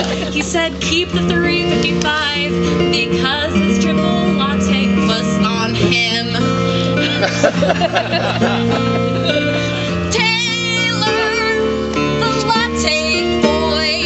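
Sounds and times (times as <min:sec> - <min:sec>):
instrumental accompaniment: 0:00.0 - 0:14.0
woman singing a ballad: 0:00.2 - 0:07.0, 0:09.9 - 0:14.0.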